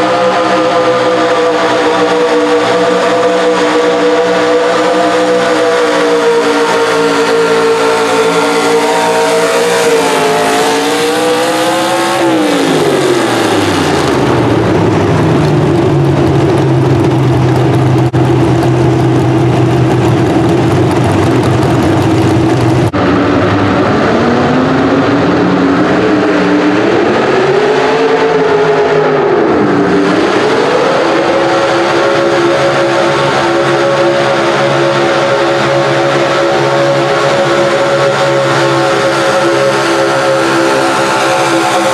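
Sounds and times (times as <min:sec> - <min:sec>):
truck engine at high revs: 0:00.0 - 0:41.9
truck engine revving: 0:00.0 - 0:41.9
truck engine idling: 0:14.2 - 0:22.9.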